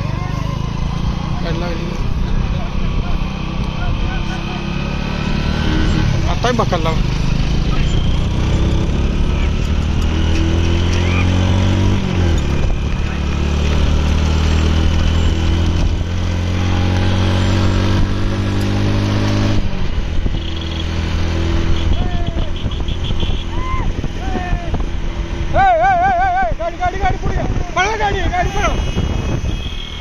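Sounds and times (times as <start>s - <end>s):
vehicle engine running: 0.0s - 28.9s
people making shrill calls: 10.7s - 11.4s, 21.8s - 24.5s, 25.5s - 26.7s.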